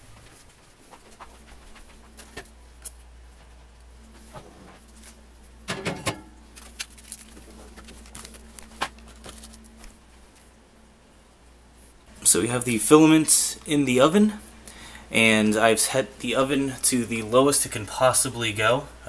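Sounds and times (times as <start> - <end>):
spool clattering on wire rack: 5.7 - 6.4.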